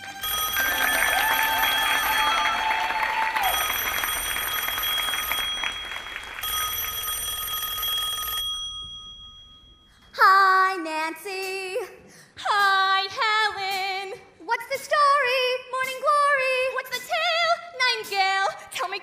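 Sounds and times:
telephone bells ringing: 0.1 - 10.0.

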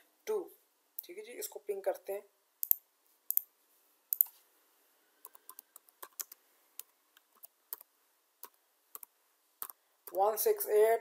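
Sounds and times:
sharp clicks: 5.2 - 10.2
typing on computer keyboard: 5.2 - 10.2.

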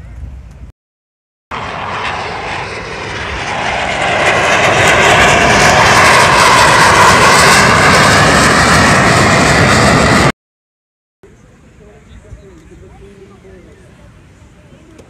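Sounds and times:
jet engine roaring overhead: 1.5 - 10.4.

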